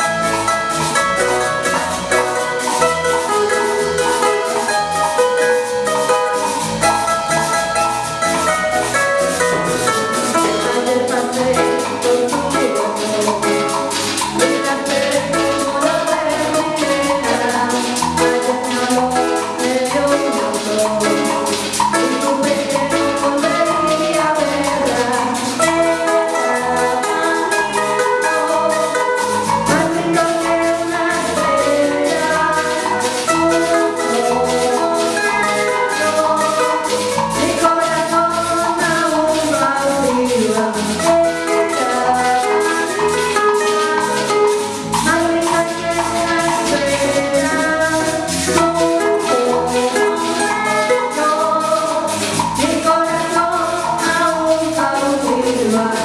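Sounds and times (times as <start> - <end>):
guira scraping: 0.0 - 56.0
live merengue band: 0.0 - 56.0
people singing: 9.4 - 56.0.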